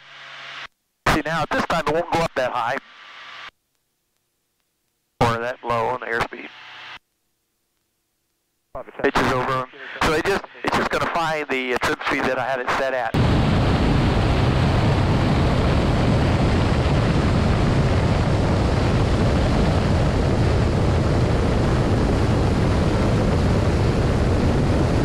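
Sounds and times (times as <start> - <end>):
aircraft engine and propeller drone: 13.2 - 25.0
wind rushing: 13.2 - 25.0.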